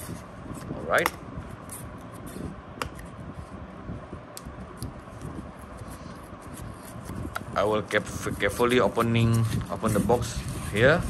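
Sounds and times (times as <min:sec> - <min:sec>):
fingers rubbing cardboard packaging: 0:05.6 - 0:11.0.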